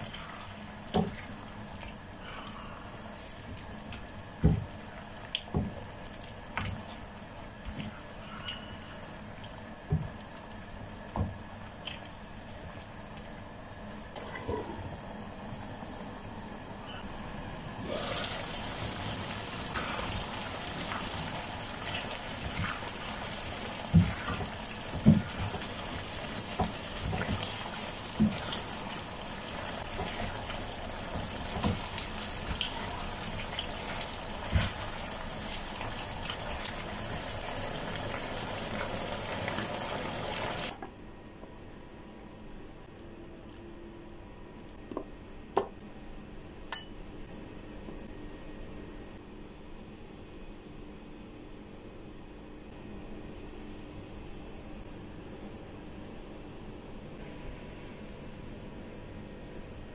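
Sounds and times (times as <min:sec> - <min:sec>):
sauce bubbling: 0:17.5 - 0:40.7.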